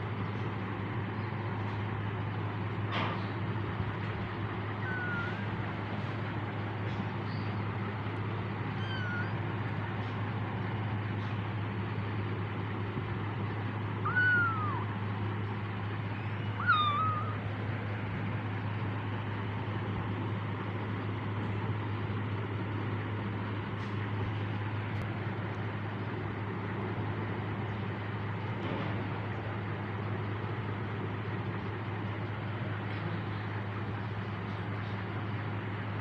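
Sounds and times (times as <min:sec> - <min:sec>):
steady low hum: 0:00.0 - 0:36.0
kitten mewing: 0:04.7 - 0:05.6, 0:08.6 - 0:09.6, 0:14.0 - 0:15.0, 0:16.1 - 0:17.5.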